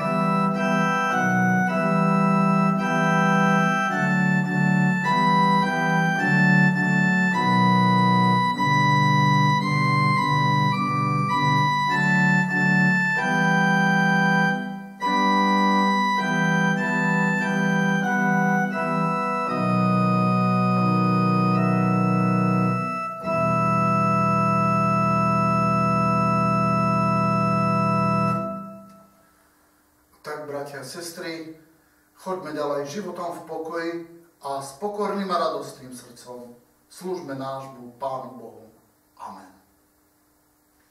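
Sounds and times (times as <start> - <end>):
organ chords on keyboard: 0.0 - 29.6.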